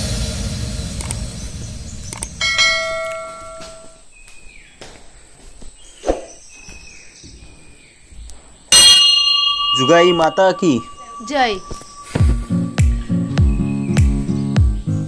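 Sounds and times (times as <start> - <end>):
click: 2.1 - 2.3
small bell chiming: 8.8 - 13.2.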